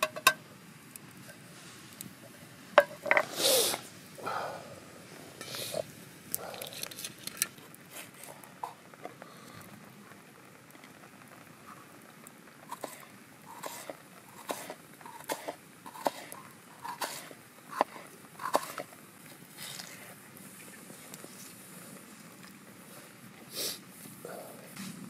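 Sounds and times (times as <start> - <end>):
knife slicing onion on wood: 13.6 - 18.8.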